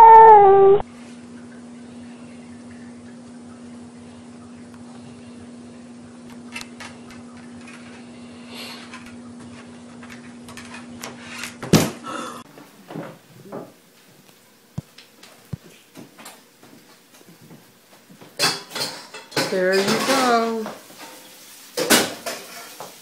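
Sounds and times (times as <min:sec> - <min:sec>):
steady low hum: 0:00.4 - 0:10.8.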